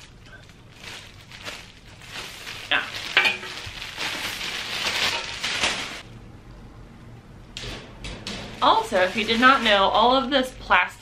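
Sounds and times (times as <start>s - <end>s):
plastic wrap crinkling: 0.0s - 6.1s, 8.3s - 10.9s.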